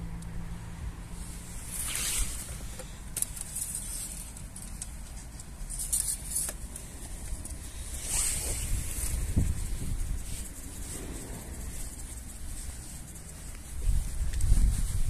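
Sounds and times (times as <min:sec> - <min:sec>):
car rumble: 0:00.0 - 0:15.0
wind noise on microphone: 0:07.0 - 0:15.0.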